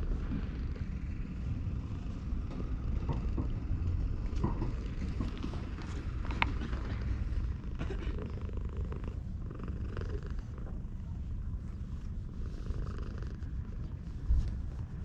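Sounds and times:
cat purring: 0.0s - 15.0s
rustling of fur: 4.0s - 15.0s.

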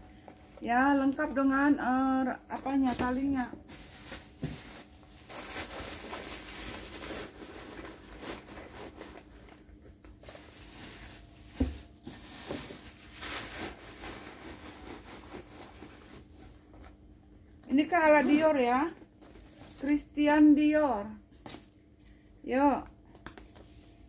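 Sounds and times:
handbag rustling and crinkling: 2.6s - 17.1s, 17.7s - 20.0s.

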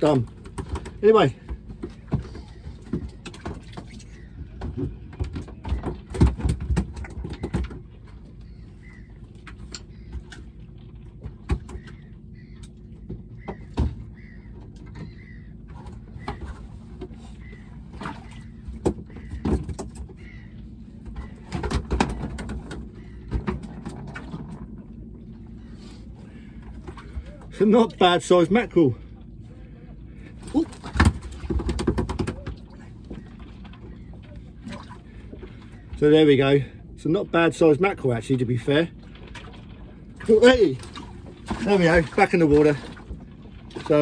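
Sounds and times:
knocks and clunks on a boat: 0.0s - 44.0s
faint bird calls: 1.9s - 5.2s, 7.1s - 24.1s, 25.3s - 27.6s, 32.3s - 36.0s.

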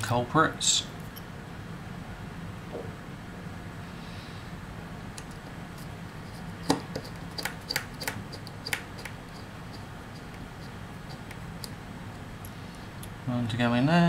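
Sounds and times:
steady low hum: 0.0s - 14.0s.

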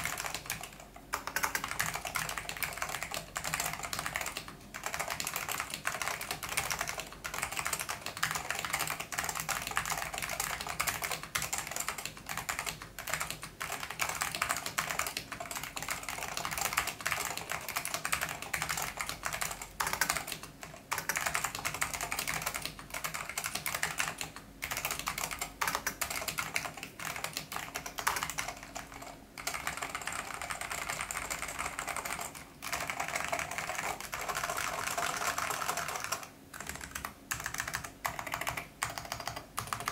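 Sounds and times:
fast typing on mechanical keyboard: 0.0s - 39.9s.

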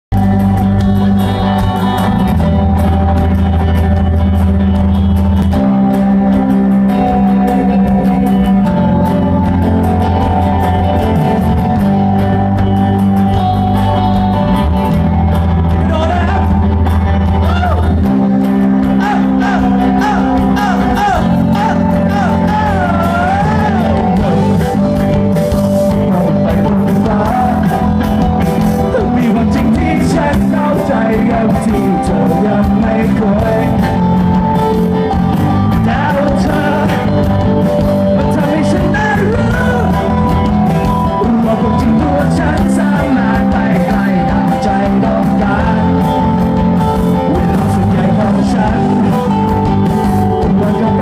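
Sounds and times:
bass line: 0.0s - 51.0s
live rock band playing: 0.1s - 51.0s
person singing: 14.6s - 51.0s.

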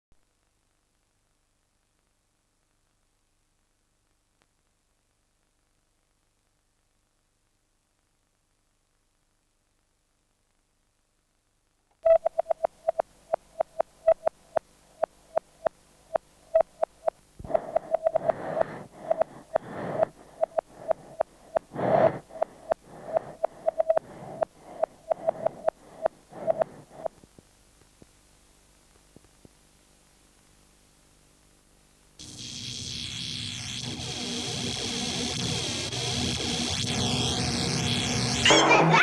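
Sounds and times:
rapid electronic beeps: 12.0s - 27.2s, 33.1s - 39.0s
rough noisy hiss: 14.4s - 39.0s.

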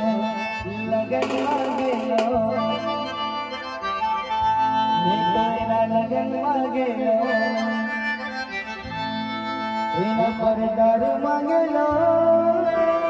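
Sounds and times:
sliding keyboard melody: 0.0s - 13.0s
band drums: 1.1s - 2.7s.

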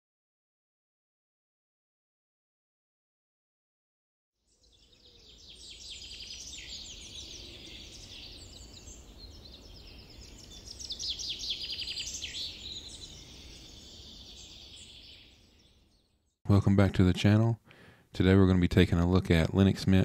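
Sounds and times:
birds singing and chirping: 4.5s - 16.9s.

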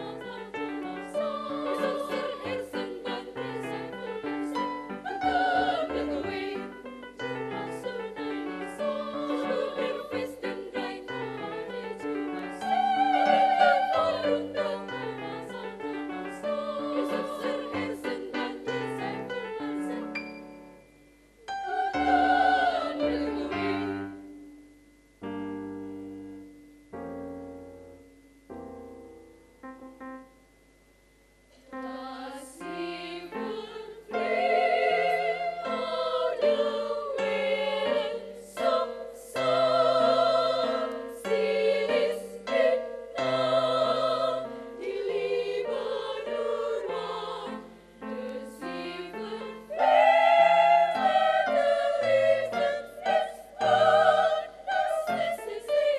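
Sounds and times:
choir singing: 0.0s - 20.8s, 21.4s - 24.3s, 31.7s - 55.9s
piano notes: 19.8s - 32.2s.

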